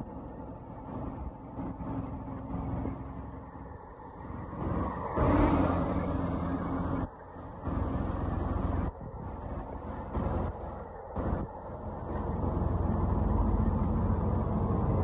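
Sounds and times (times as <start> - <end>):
truck engine humming: 0.0 - 15.0.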